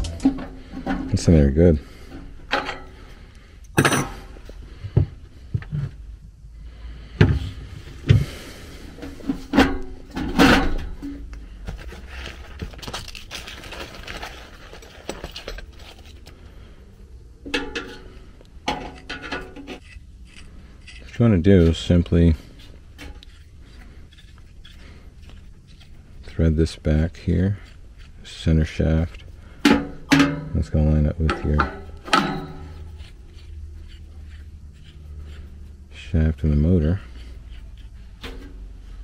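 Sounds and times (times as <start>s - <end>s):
metal parts knocking and clanking: 12.6s - 16.3s, 17.5s - 19.9s, 29.1s - 32.9s.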